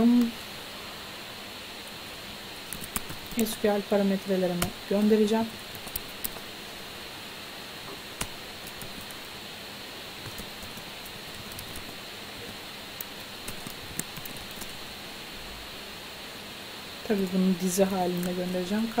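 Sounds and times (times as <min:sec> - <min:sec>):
steady background hiss: 0:00.0 - 0:19.0
keyboard keystrokes: 0:02.7 - 0:03.4, 0:10.2 - 0:11.9, 0:13.0 - 0:14.8.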